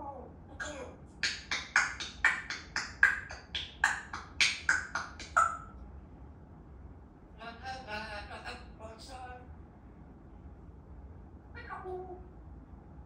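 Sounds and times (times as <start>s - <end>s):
parrot clicking: 1.2s - 5.7s.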